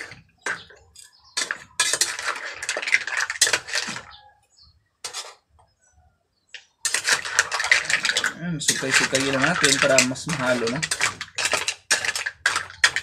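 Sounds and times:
utensils scraping metal wok: 0:00.0 - 0:04.2, 0:05.0 - 0:05.4, 0:06.8 - 0:13.0
mussel shells clattering: 0:01.4 - 0:04.2, 0:06.9 - 0:13.0.

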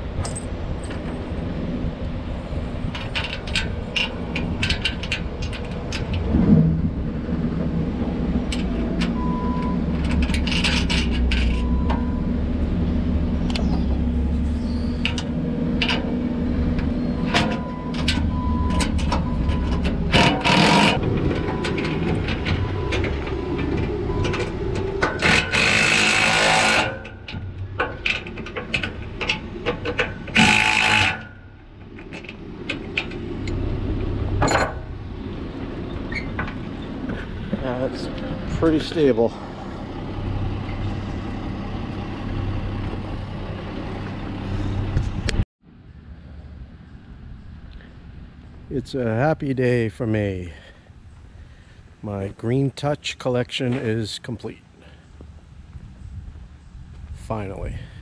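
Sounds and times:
wrench and bolts clinking: 0:10.0 - 0:11.7.

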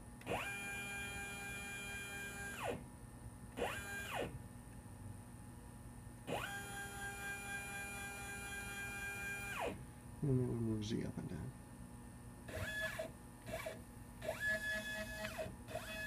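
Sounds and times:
stepper motors whining: 0:00.2 - 0:02.8, 0:06.3 - 0:09.8, 0:12.5 - 0:16.0.

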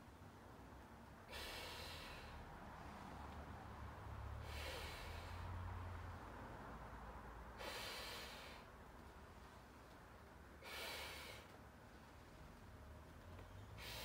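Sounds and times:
hissing intakes of breath: 0:01.3 - 0:02.4, 0:07.6 - 0:08.7, 0:10.6 - 0:11.5, 0:13.7 - 0:14.0.

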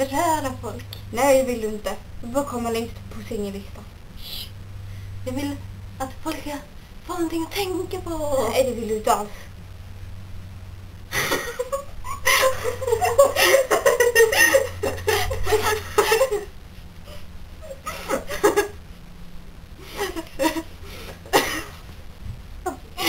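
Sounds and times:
girls laughing: 0:11.1 - 0:16.5, 0:17.1 - 0:18.8, 0:19.9 - 0:20.7.

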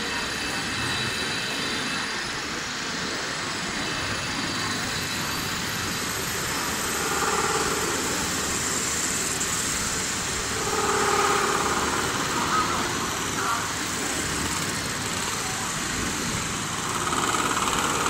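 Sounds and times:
metal spinning machine humming: 0:00.0 - 0:18.0.

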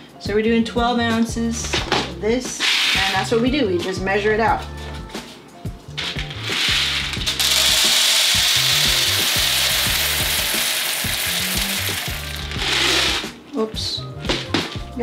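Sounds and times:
coffee beans pouring rattle: 0:06.0 - 0:13.3.

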